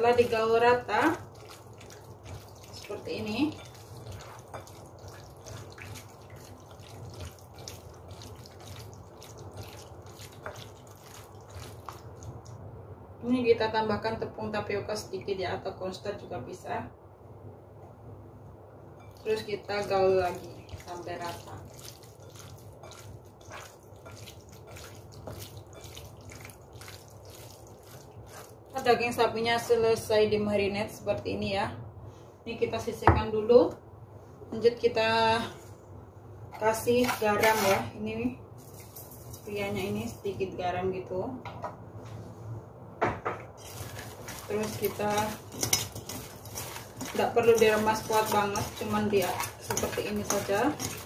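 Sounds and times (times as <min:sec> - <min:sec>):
wet squelching of meat: 0:00.0 - 0:12.6, 0:19.1 - 0:28.8, 0:43.6 - 0:51.0
low steady hum: 0:00.0 - 0:51.0.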